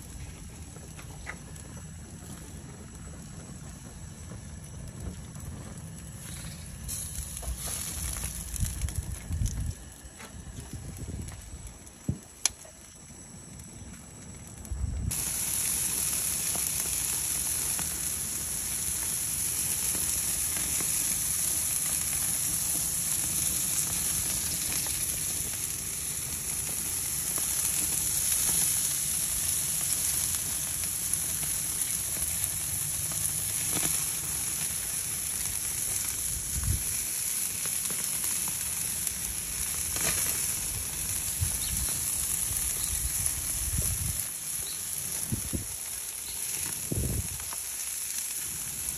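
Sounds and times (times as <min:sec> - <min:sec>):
meat sizzling on a grill: 0:00.0 - 0:10.2, 0:15.1 - 0:48.9.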